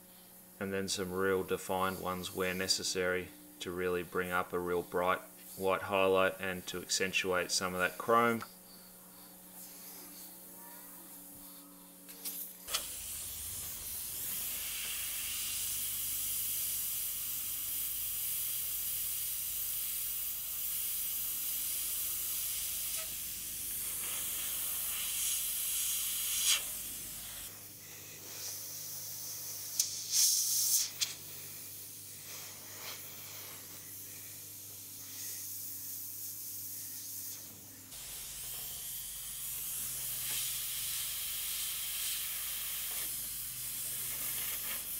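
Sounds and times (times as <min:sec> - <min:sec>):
airbrush spraying hiss: 0:09.6 - 0:10.4, 0:11.0 - 0:44.9.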